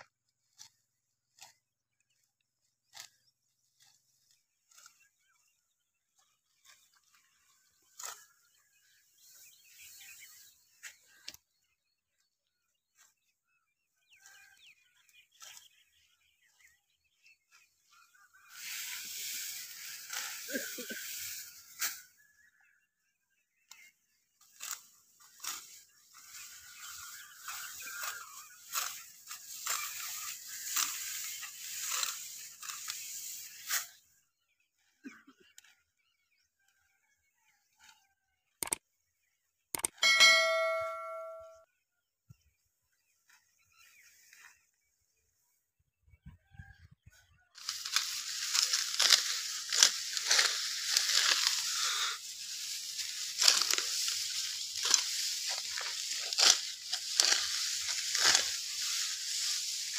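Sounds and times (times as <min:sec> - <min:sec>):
wheat stalks crunching as cut: 0:18.4 - 0:22.1, 0:23.7 - 0:34.0, 0:47.6 - 0:59.9.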